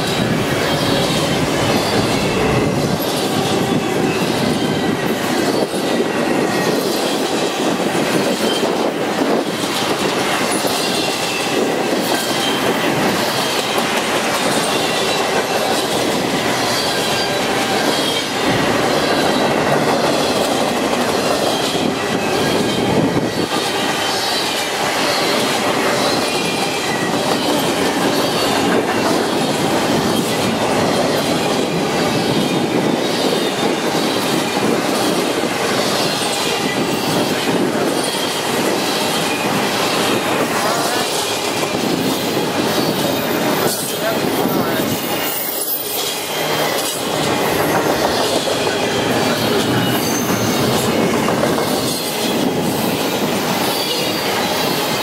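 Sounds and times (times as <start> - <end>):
train wheels rushing on rails: 0.0 - 55.0
wheel squeal: 40.6 - 54.9.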